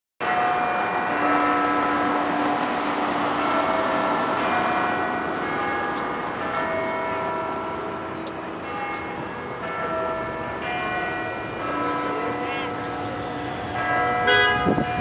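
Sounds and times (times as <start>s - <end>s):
bells chiming: 4.4s - 15.0s.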